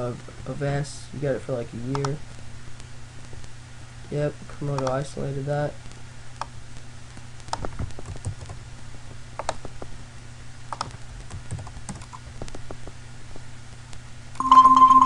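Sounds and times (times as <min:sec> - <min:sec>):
mouse and keyboard clicks: 0:09.4 - 0:09.9, 0:10.7 - 0:12.9
electronic alert tone: 0:14.4 - 0:15.0.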